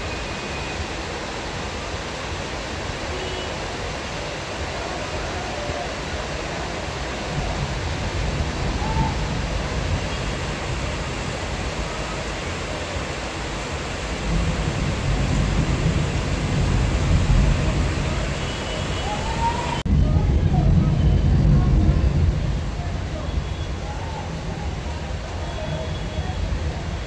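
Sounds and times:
heavy rain pouring: 0.0 - 27.0
thunder rumbling: 5.7 - 12.3, 13.6 - 25.6.

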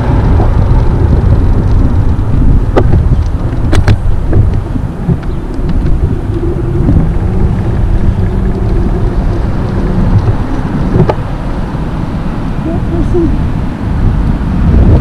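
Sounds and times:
trike rolling on asphalt: 0.0 - 15.0
wind buffeting microphone: 0.0 - 15.0.

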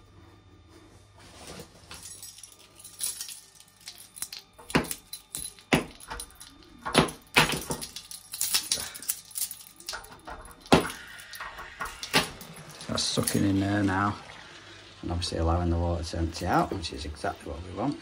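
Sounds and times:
keys jangling and clinking: 1.9 - 13.6.

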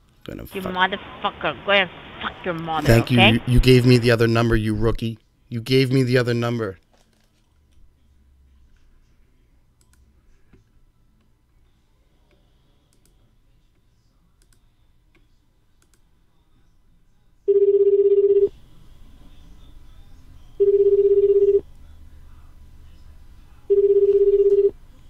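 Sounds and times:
phone ringback beep: 17.5 - 18.5, 20.6 - 21.6, 23.7 - 24.7.

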